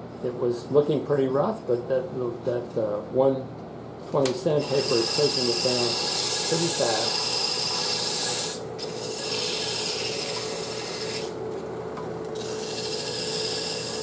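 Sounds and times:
sandpaper hissing on spinning wood: 4.6 - 11.4
lathe humming: 4.6 - 14.0.

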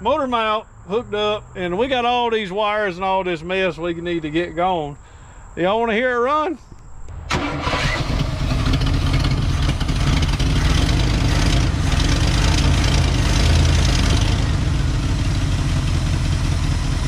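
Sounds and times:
truck engine running: 7.1 - 17.0.

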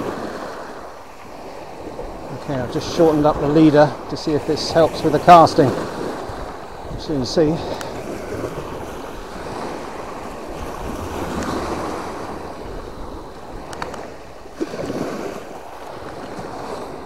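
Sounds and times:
waves washing on pebble beach: 0.0 - 17.0
wind buffeting microphone: 0.0 - 17.0
faint clicks: 13.7 - 14.0.

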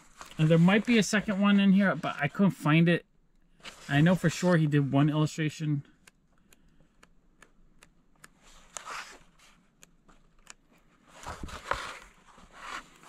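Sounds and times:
book pages rustling: 0.0 - 2.2, 8.4 - 13.0
page-turn swish: 11.1 - 13.0.

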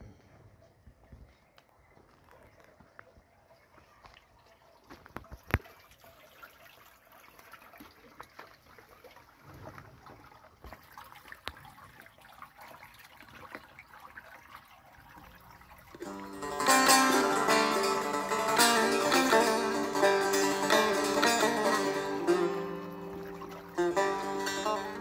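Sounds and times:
faint ticks and drips: 1.1 - 16.1
stream trickling: 3.5 - 25.0.

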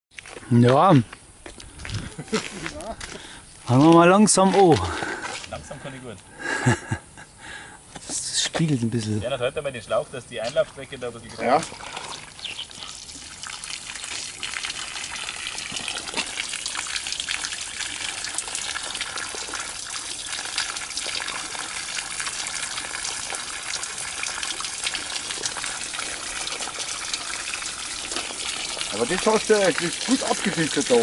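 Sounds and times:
water gushing and splashing: 11.3 - 31.0.

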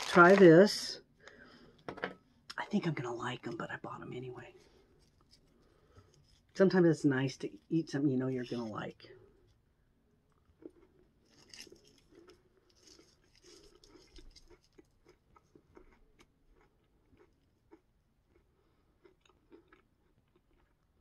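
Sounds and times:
faint chewing: 4.4 - 6.6, 10.3 - 21.0.

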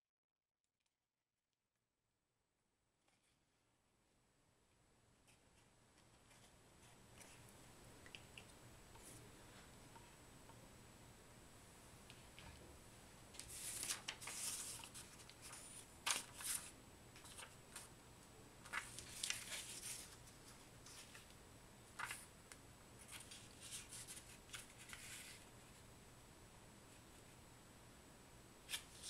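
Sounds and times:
paper rustling and crinkling: 5.3 - 7.5, 13.3 - 17.9, 18.6 - 22.3, 23.0 - 25.5, 28.6 - 29.0.

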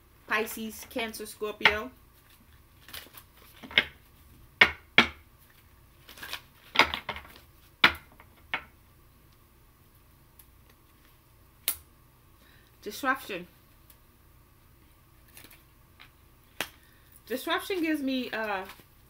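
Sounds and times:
cards snapping and rustling: 2.2 - 4.0, 5.5 - 7.5, 15.3 - 15.6.

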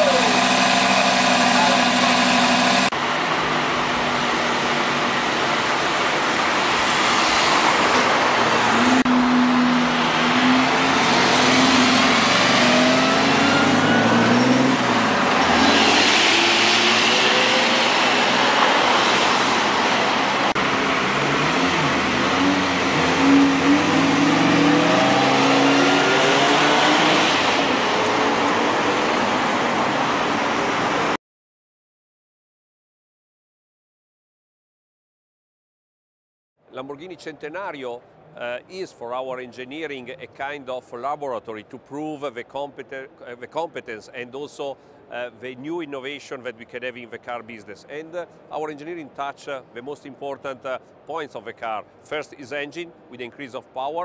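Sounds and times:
sports car engine revving: 0.0 - 2.9, 7.3 - 29.5.

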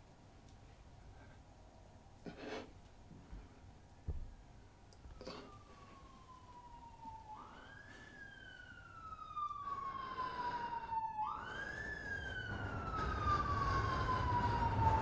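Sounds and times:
emergency siren wailing: 5.0 - 15.0.

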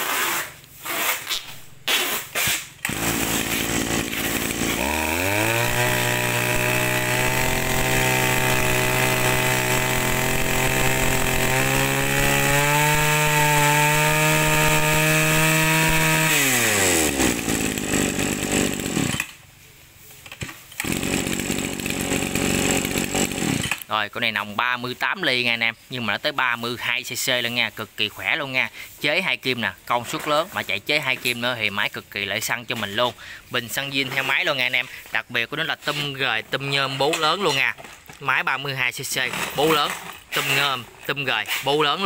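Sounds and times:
brush-cutter engine revving: 0.1 - 19.4, 20.4 - 23.9, 39.0 - 42.0.

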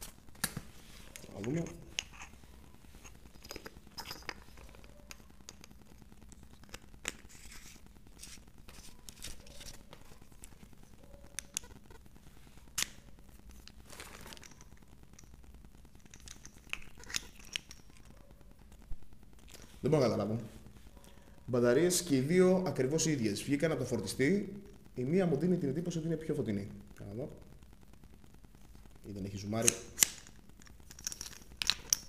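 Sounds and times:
plastic packaging rustling: 0.0 - 11.7, 12.6 - 15.3.

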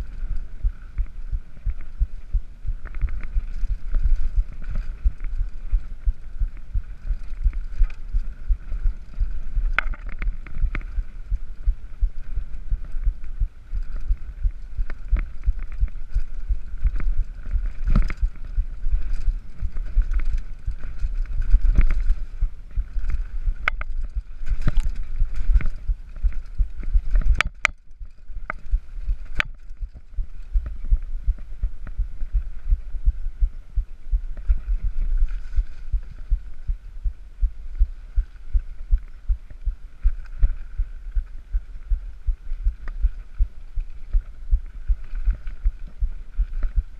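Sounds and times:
bike tyre noise: 0.0 - 46.9
wind buffeting microphone: 0.0 - 46.9
bike knocking and rattling: 0.1 - 32.5.

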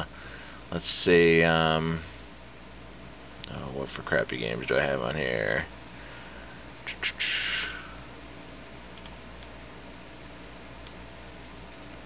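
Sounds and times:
faint steady hum: 0.0 - 12.0
computer mouse clicks: 9.0 - 9.5.

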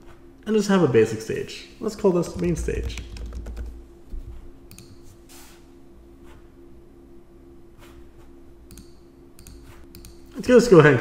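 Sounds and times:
low hum: 1.1 - 11.0
keyboard and mouse clicks: 2.4 - 3.8, 8.7 - 10.2.

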